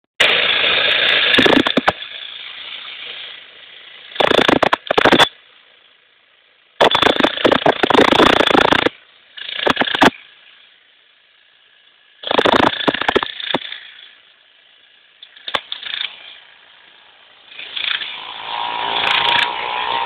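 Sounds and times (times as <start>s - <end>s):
demolition breaker hammering brick: 6.8s - 8.9s, 12.2s - 13.7s.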